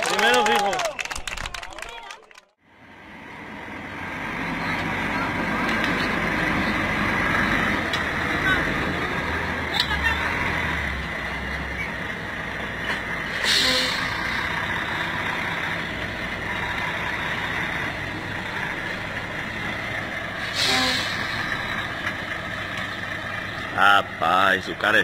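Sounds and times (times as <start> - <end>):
truck diesel engine running: 2.6 - 25.0
air brake hisses: 13.3 - 14.3, 20.4 - 21.7.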